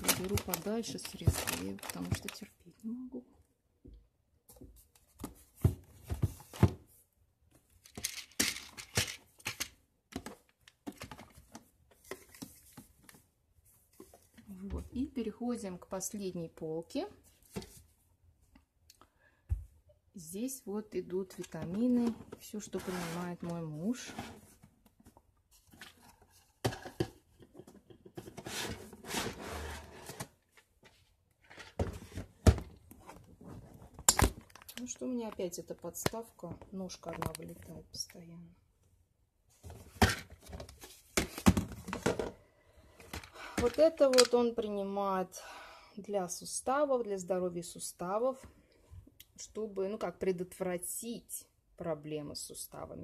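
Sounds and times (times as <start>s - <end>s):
rustling and sliding: 22.6s - 24.6s, 28.2s - 32.3s.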